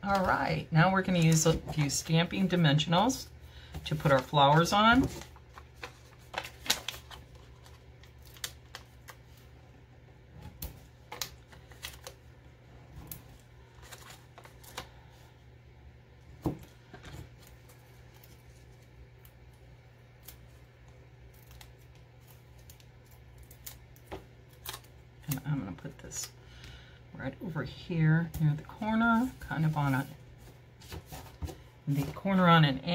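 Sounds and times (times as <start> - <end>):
low steady hum: 0.0 - 32.9
small clicks and paper crackles: 3.9 - 9.4, 10.5 - 12.3, 13.0 - 14.9, 16.9 - 26.4
adhesive squares peeled off paper: 5.4 - 9.4.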